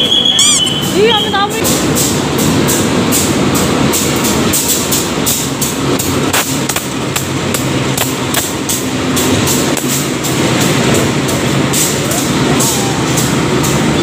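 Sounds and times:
diesel locomotive droning: 0.0s - 14.0s.

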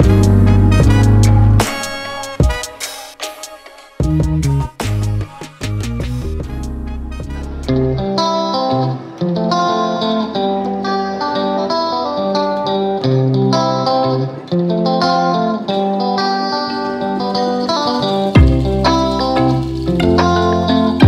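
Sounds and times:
steady bass line: 0.0s - 1.7s, 4.0s - 8.1s, 18.4s - 21.0s
plucked guitar melody: 0.0s - 2.8s, 4.0s - 21.0s.

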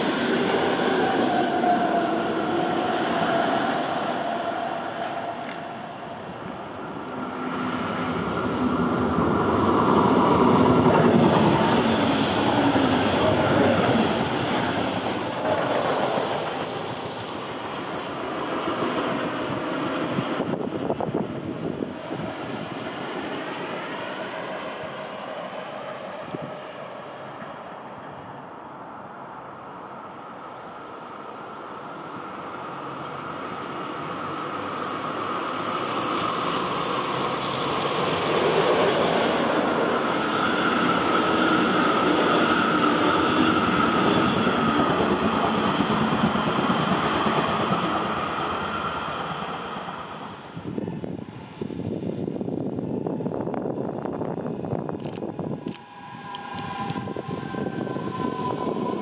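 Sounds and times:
train wheels rumbling on rail: 0.0s - 28.5s, 30.2s - 59.0s
locomotive high whine: 0.0s - 59.0s.

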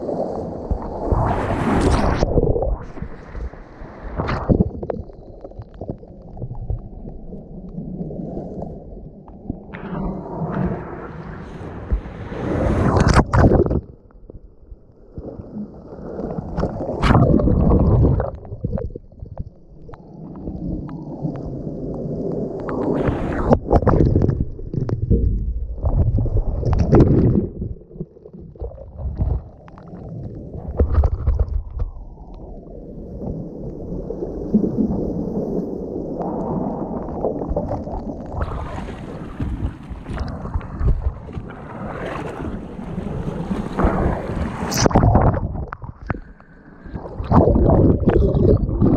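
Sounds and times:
waves breaking: 0.0s - 4.9s, 9.7s - 13.8s, 20.3s - 24.9s, 33.4s - 48.9s
muffled underwater rushing and bubbles: 0.0s - 48.9s.

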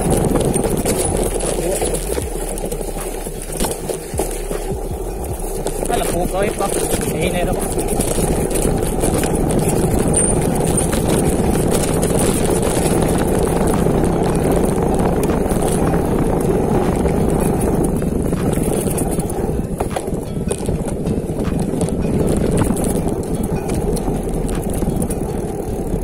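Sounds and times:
bike rattles and clicks: 0.0s - 26.0s
tyre noise on rough ground: 0.0s - 26.0s
wind on microphone: 0.0s - 26.0s.

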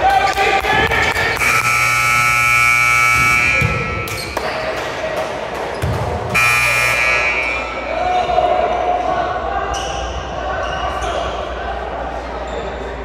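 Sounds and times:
scoreboard buzzer: 1.4s - 4.1s, 6.3s - 7.8s.

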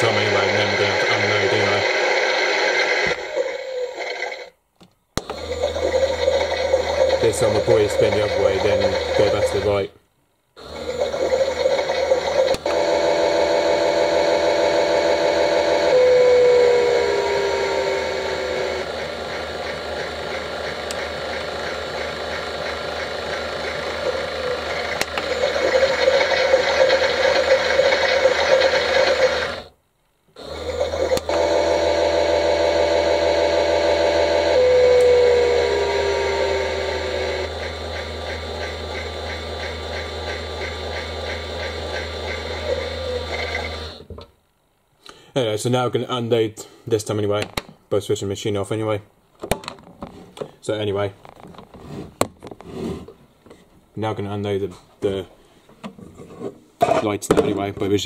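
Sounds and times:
toy washing machine motor whirring: 0.0s - 4.6s, 5.2s - 9.9s, 10.6s - 29.7s, 30.4s - 44.1s.

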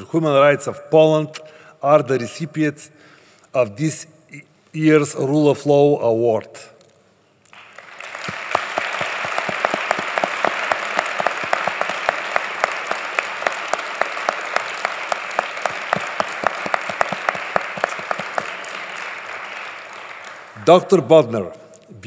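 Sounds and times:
person clapping close to microphone: 7.5s - 20.7s
audience applause: 7.6s - 20.8s.

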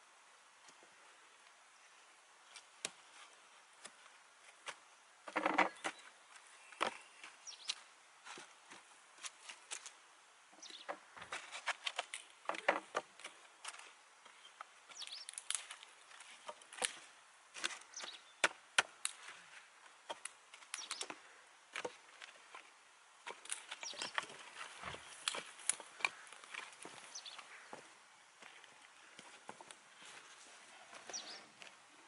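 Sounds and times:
dry sticks clattering: 23.2s - 27.0s.

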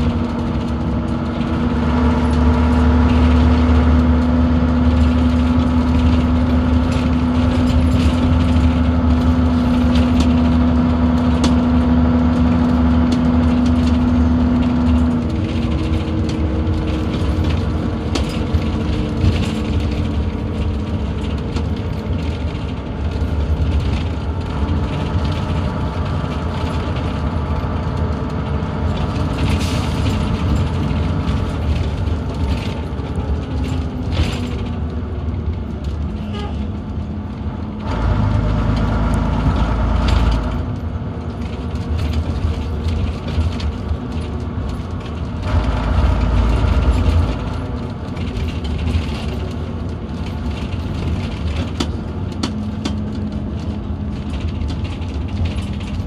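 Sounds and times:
bus body rattling and clicking: 0.0s - 56.0s
bus diesel engine running: 0.0s - 56.0s.

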